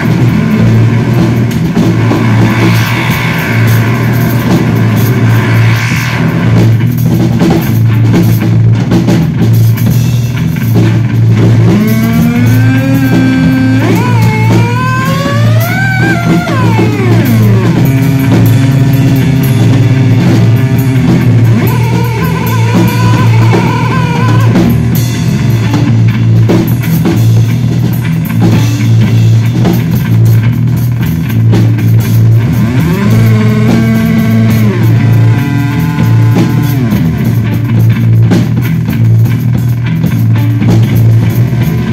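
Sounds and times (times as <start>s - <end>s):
drum kit: 0.0s - 41.9s
electric bass through effects: 0.0s - 41.9s
gliding effect tones: 1.6s - 6.9s, 11.5s - 24.8s.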